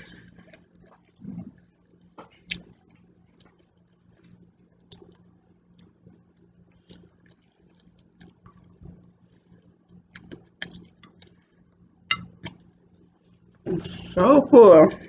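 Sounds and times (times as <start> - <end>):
chewing: 0.1 - 11.6.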